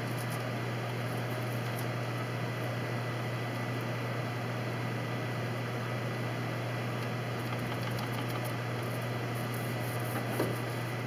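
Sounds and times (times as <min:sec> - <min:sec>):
low hum with hiss: 0:00.0 - 0:11.0.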